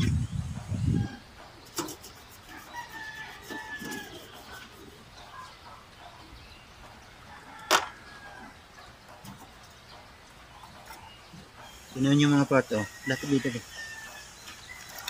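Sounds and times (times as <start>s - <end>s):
rooster crowing faintly: 2.4s - 5.5s.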